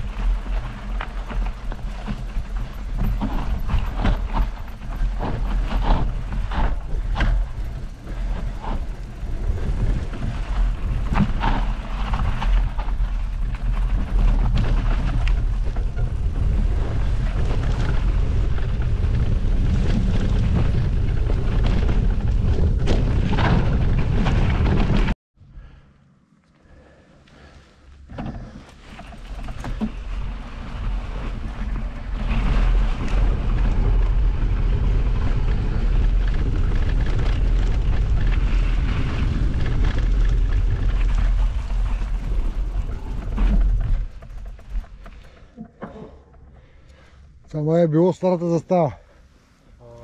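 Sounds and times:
bike rattling over bumps: 0.0 - 25.7, 27.4 - 49.3.

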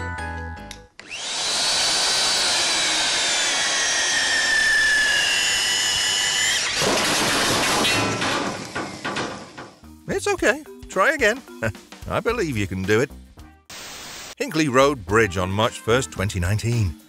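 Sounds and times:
drill press motor whining: 1.0 - 9.6.

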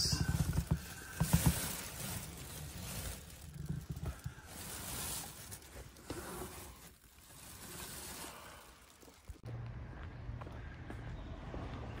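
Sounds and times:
faint plastic rustling: 0.0 - 9.4.

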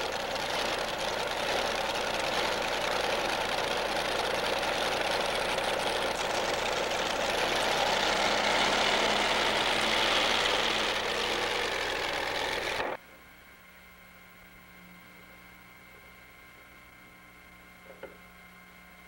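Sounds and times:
tractor engine rumbling: 0.0 - 13.0.

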